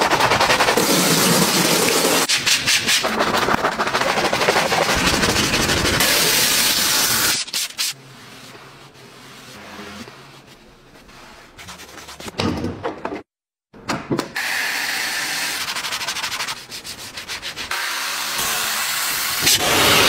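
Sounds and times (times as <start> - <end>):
brush scrubbing foam: 0.0 - 12.3, 15.5 - 17.8
cloth wiping leather: 8.1 - 11.9.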